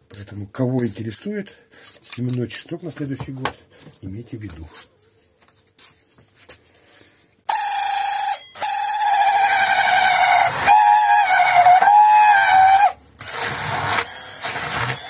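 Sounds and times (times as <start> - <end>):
immersion blender motor whining: 8.7 - 15.0.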